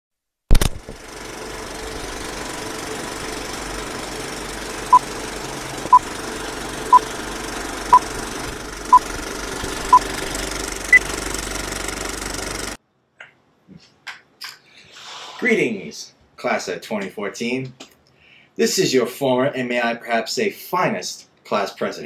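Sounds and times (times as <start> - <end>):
film projector rattle: 0.6 - 12.8.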